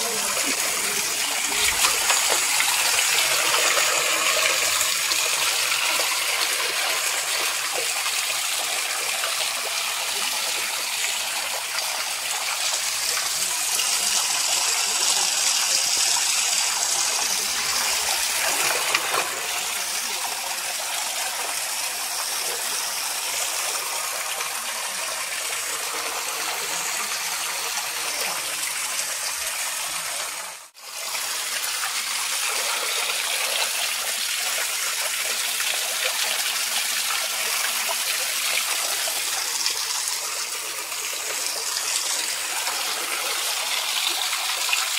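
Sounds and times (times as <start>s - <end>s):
water pouring from stone spout: 0.0s - 44.9s.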